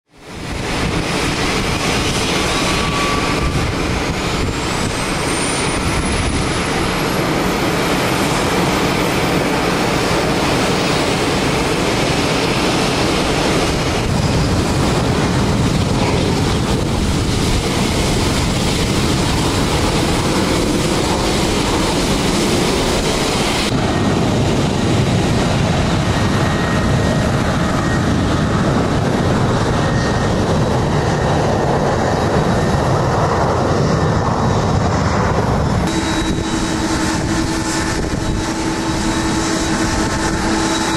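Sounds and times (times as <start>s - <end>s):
high jet engine whine: 0.0s - 40.9s
jet engine roar: 0.0s - 40.9s.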